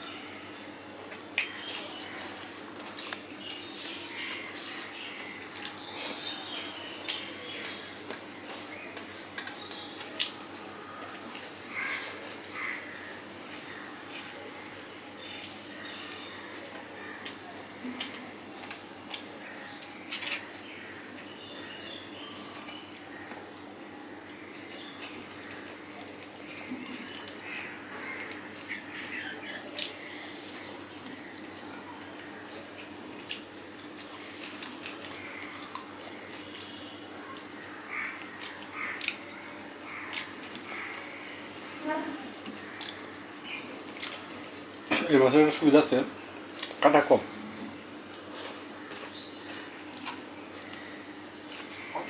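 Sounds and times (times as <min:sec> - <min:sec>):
wet chewing: 0:02.4 - 0:06.4, 0:15.3 - 0:20.9, 0:24.8 - 0:41.2, 0:42.4 - 0:44.9, 0:46.5 - 0:46.8, 0:48.1 - 0:52.0.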